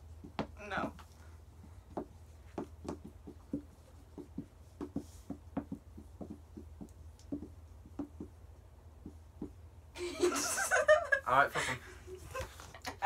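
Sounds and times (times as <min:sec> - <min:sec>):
marker writing on whiteboard: 0:00.0 - 0:09.8.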